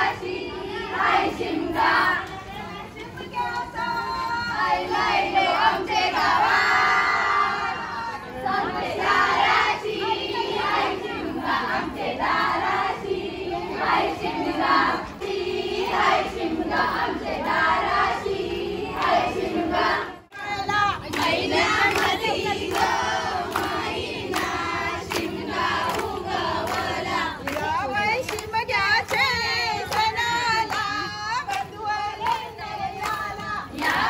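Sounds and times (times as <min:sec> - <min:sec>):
women singing in chorus: 0:00.0 - 0:34.0
hand claps: 0:21.1 - 0:34.0.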